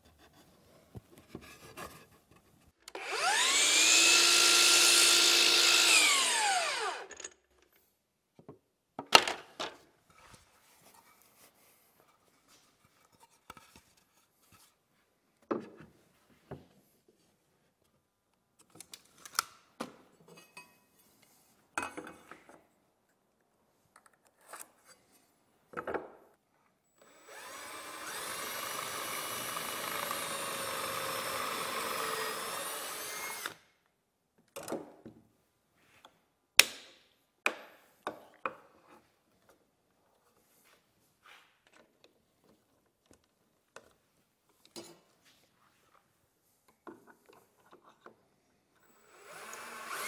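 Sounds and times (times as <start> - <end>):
cordless drill boring wood: 2.9 - 7.2, 27.0 - 33.6, 48.8 - 50.0.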